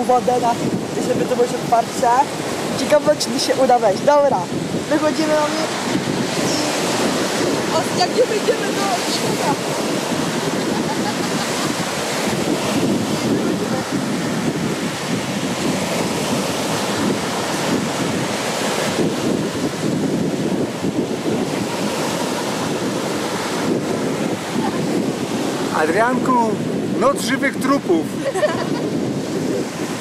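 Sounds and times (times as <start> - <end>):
waves breaking on shore: 0.0 - 30.0
wind buffeting microphone: 0.0 - 30.0.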